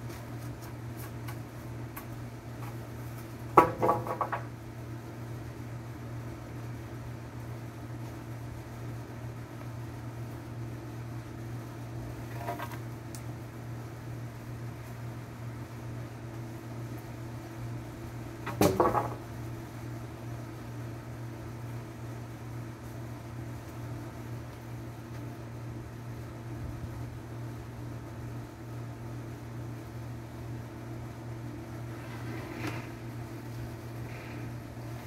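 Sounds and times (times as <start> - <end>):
low mechanical hum: 0.0 - 35.0
clatter of knocks: 3.6 - 4.5.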